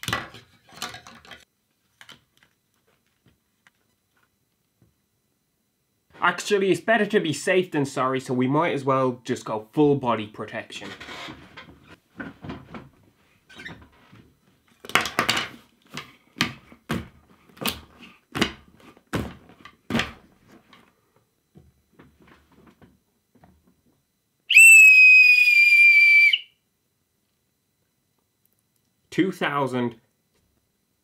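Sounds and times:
helmet knocks and bumps: 16.4s - 20.3s
shrill plastic whistle: 24.5s - 26.6s.

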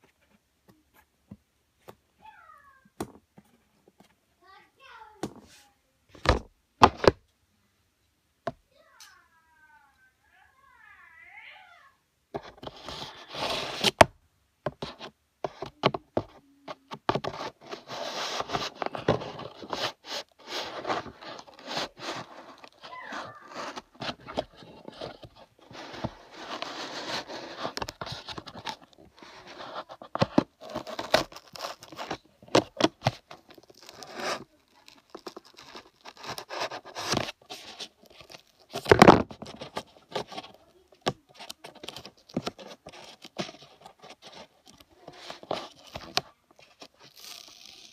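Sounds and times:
packaging rustling and tearing: 17.2s - 47.9s.

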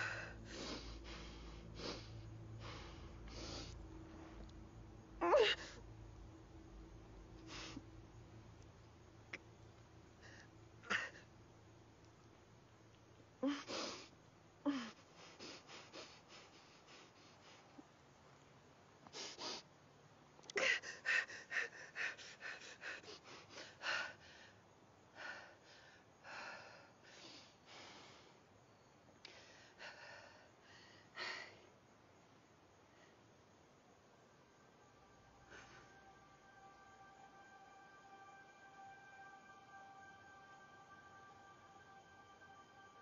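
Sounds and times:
woman's strained vocal sounds: 5.2s - 5.8s.

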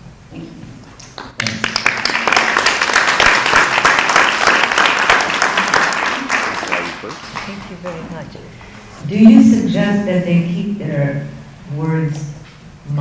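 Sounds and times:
audience applauding: 1.1s - 8.2s.

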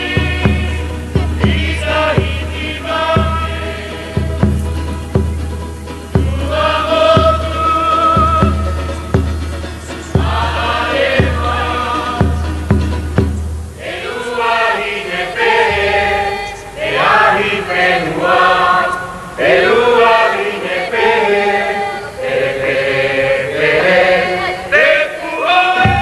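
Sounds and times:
group of voices chanting: 0.0s - 4.6s, 6.2s - 9.0s, 10.0s - 12.7s, 13.8s - 26.0s.

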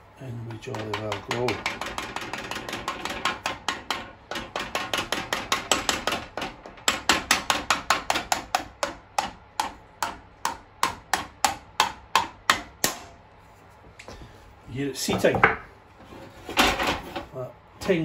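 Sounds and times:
mallet tapping metal shaft: 0.5s - 13.1s.

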